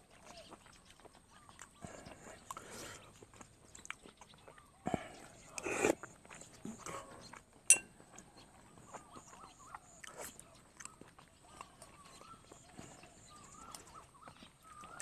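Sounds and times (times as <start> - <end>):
chewing: 0.0 - 15.0
spoon clinking on ceramic bowl: 7.7 - 7.9.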